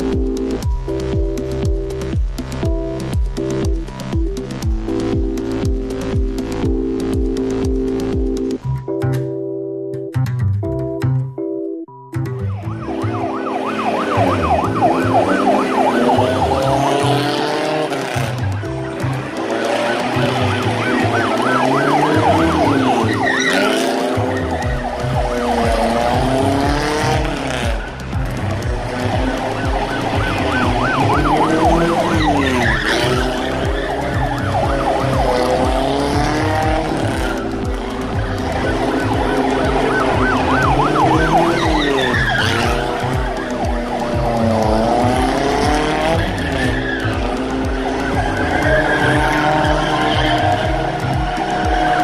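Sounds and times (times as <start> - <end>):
music with steady bass beat: 0.0 - 52.0
siren yelping: 12.3 - 52.0
car engine running: 13.9 - 52.0.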